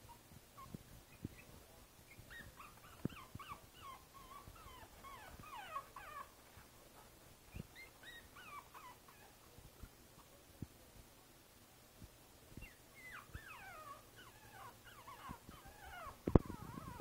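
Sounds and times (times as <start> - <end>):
puppy whining: 0.0 - 6.7, 7.5 - 9.4, 12.6 - 17.0.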